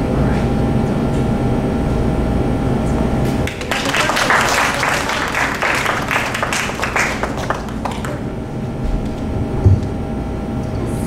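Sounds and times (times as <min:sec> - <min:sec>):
audience applauding: 0:03.2 - 0:08.5.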